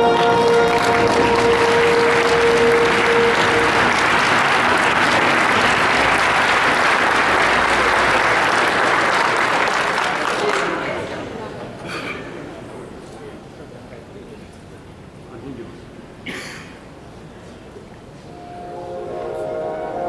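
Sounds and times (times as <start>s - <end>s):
held music note: 0.0s - 6.3s
audience applauding: 0.0s - 11.6s.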